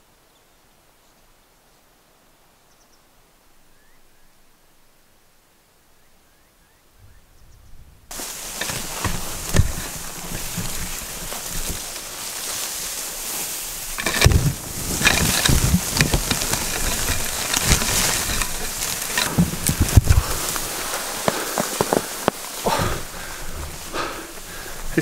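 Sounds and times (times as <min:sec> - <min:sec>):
branches cracking and thumping: 0:08.1 - 0:25.0
bush rustling and scraping: 0:08.1 - 0:25.0.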